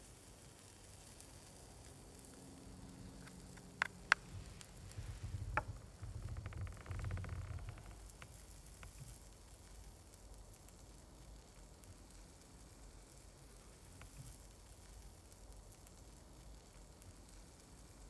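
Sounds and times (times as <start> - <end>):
faint ticks: 0.6 - 18.0
low rumble: 4.0 - 8.1.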